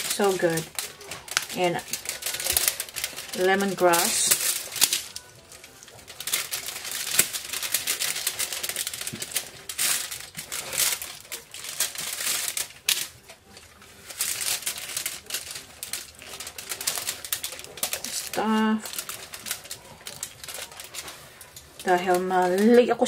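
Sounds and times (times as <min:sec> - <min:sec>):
aluminium foil crinkling: 0:00.0 - 0:23.0.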